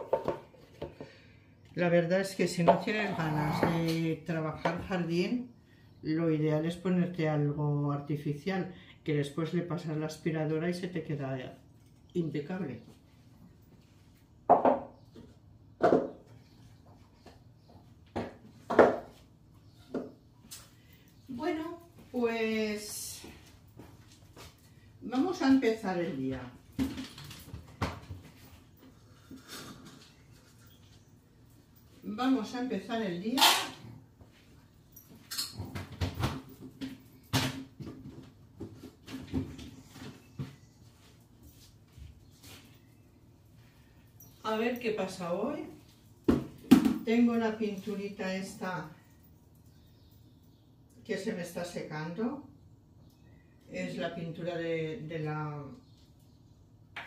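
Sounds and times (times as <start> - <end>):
dog bowls knocking on table: 0.0 - 1.0, 14.5 - 14.9, 15.8 - 16.2.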